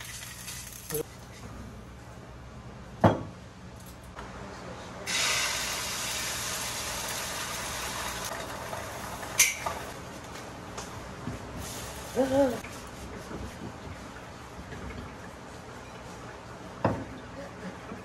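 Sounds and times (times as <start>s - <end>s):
egg sizzling in hot oil: 0.0s - 1.0s, 5.1s - 10.0s.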